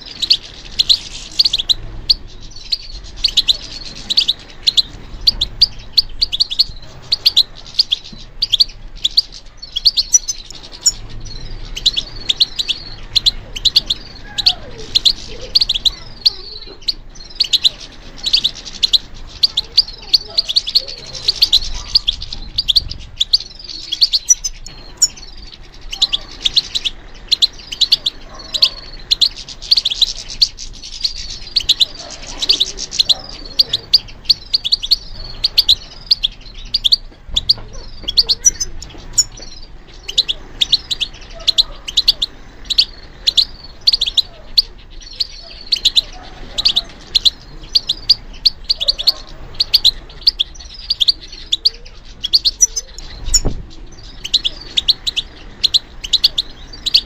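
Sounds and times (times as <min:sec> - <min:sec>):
finch twittering song: 0:00.0 - 0:57.0.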